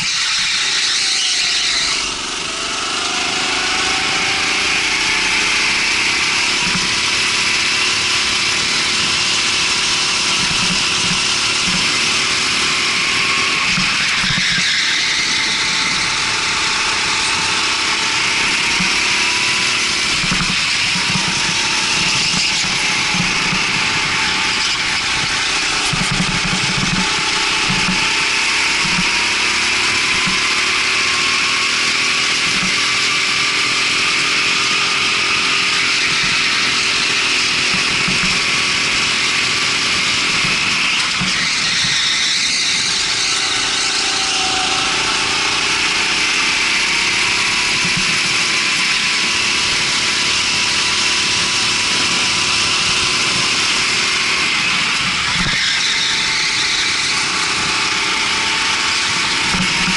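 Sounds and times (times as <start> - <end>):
go-kart engine running: 0.0 - 59.9
rushing noise: 35.9 - 47.9.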